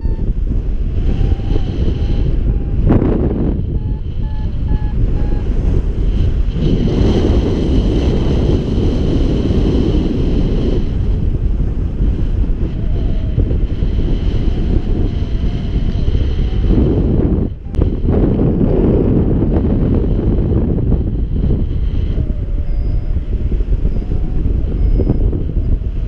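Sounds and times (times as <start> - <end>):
short beeps: 0.0 - 0.3, 3.6 - 5.5
wind buffeting microphone: 0.0 - 26.0.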